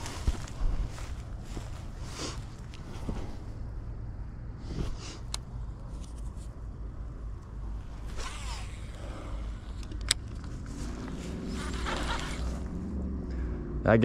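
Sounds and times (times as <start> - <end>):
low rumble: 0.0 - 5.9
zip-like rasp: 8.1 - 9.2, 11.2 - 12.7.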